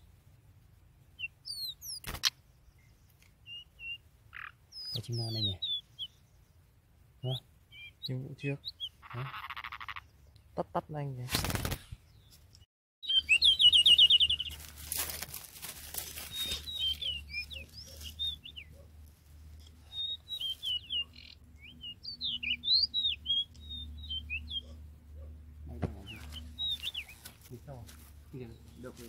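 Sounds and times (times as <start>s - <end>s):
bird whistled notes: 13.0s - 14.5s
rustling noise: 14.3s - 18.2s.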